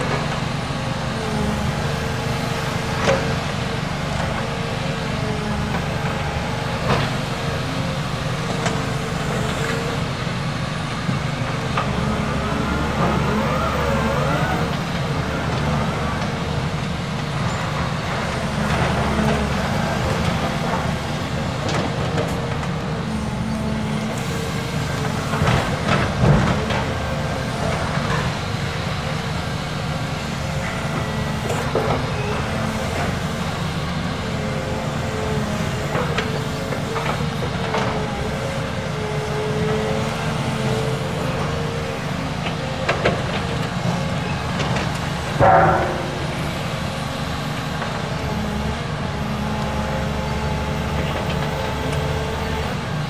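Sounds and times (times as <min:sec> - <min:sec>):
diesel engine under load: 0:00.0 - 0:53.0
rubble clanking and crunching: 0:42.3 - 0:48.9.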